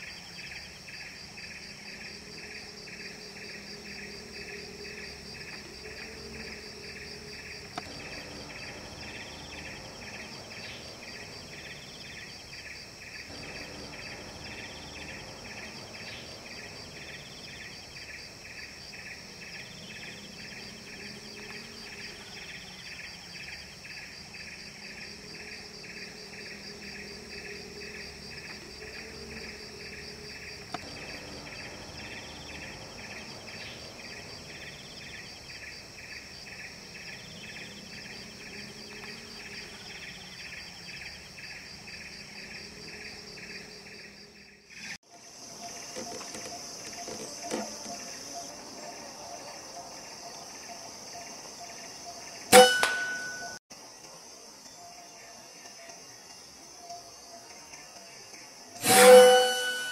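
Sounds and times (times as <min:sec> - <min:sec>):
insects droning: 0:00.0 - 0:59.9.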